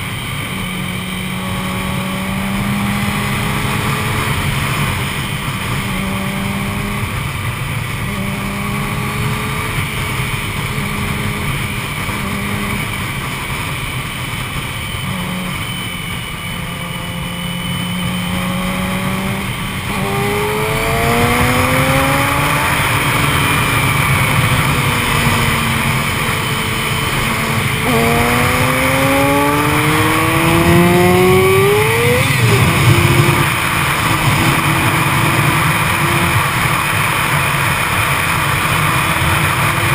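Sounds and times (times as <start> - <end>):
motorcycle engine revving: 0.0 - 39.9
wind rush: 18.7 - 39.9.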